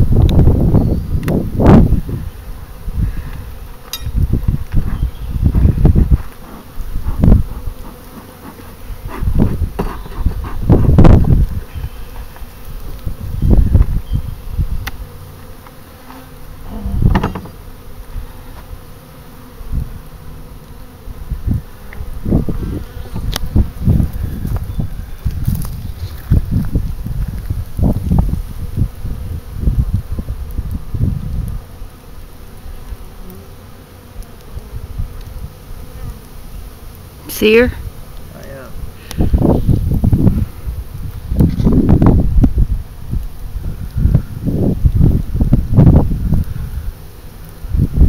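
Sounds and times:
bees buzzing: 0:00.0 - 0:48.0
low rumbles on microphone: 0:04.1 - 0:06.2, 0:09.2 - 0:11.6, 0:16.6 - 0:17.4.

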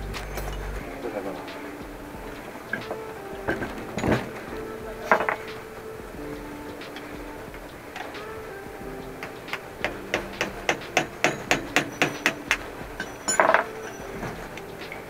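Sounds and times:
hammer tapping on metal: 0:09.2 - 0:14.1
metallic rattle: 0:09.3 - 0:15.0.

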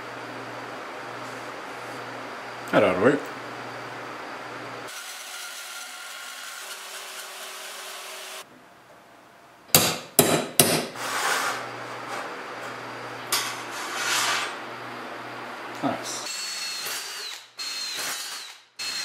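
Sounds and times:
bandsaw running: 0:04.9 - 0:08.4
scraping on metal: 0:13.4 - 0:14.6.

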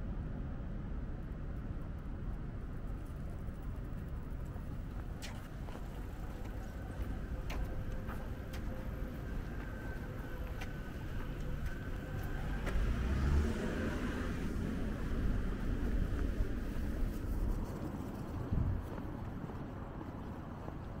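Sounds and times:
traffic rumble: 0:00.0 - 0:21.0
vehicle passing close: 0:09.0 - 0:17.6.

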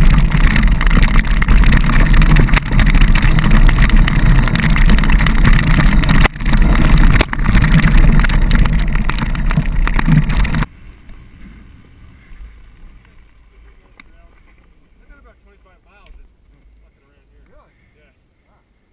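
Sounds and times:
wind noise: 0:00.0 - 0:13.7
dirt bike engine: 0:00.0 - 0:16.8.

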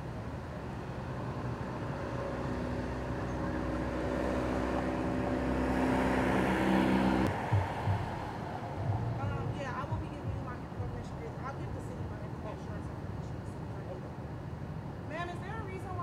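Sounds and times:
car engine hum passing: 0:00.0 - 0:16.0
short low thump: 0:07.3 - 0:09.1.

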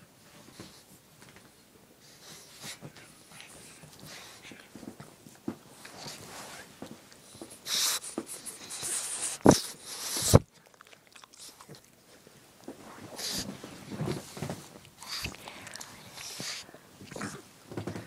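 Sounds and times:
dogs scuffling and mouthing: 0:00.3 - 0:18.0.

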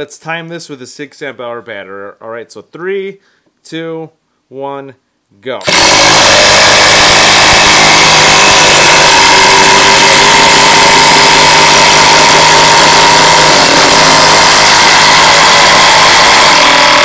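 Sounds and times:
impact driver hammering: 0:05.6 - 0:17.0.

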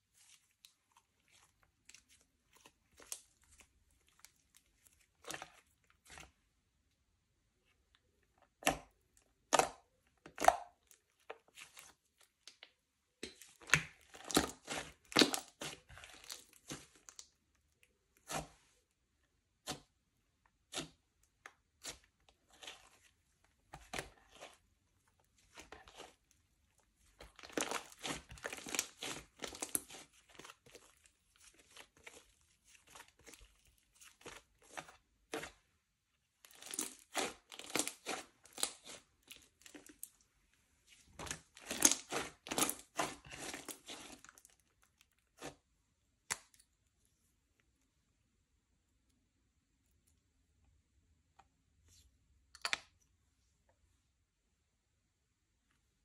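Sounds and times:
slime squished crackling and popping: 0:13.3 - 0:17.4, 0:27.1 - 0:35.5, 0:36.5 - 0:40.1, 0:41.2 - 0:44.6.

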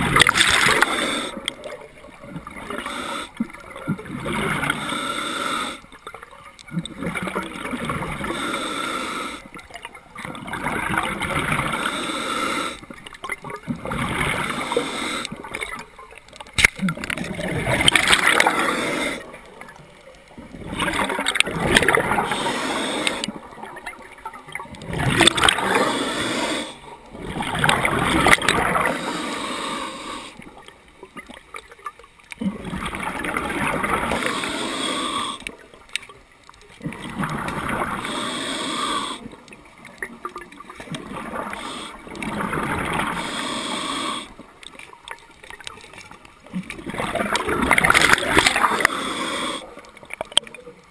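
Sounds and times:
diver breathing through regulator: 0:00.0 - 0:01.8, 0:02.5 - 0:03.5, 0:04.4 - 0:06.0, 0:08.0 - 0:09.6, 0:11.4 - 0:13.0, 0:14.0 - 0:15.6, 0:17.8 - 0:19.5, 0:20.8 - 0:23.5, 0:25.1 - 0:27.0, 0:28.2 - 0:30.6, 0:33.8 - 0:35.6, 0:37.6 - 0:39.5, 0:41.2 - 0:44.6, 0:47.7 - 0:50.1
exhaled bubbles gurgling: 0:00.0 - 0:50.9.

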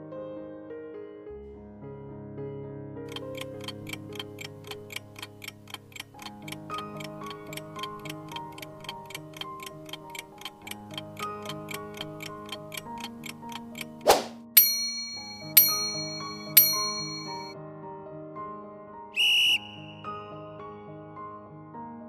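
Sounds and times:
ticking clock: 0:03.1 - 0:17.6.

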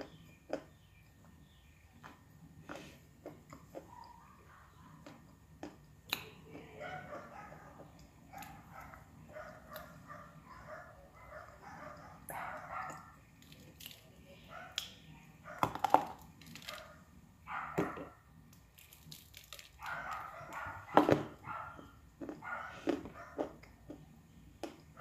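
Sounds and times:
dry clay cracking and crunching: 0:13.4 - 0:14.2, 0:15.6 - 0:16.9, 0:18.4 - 0:20.6.

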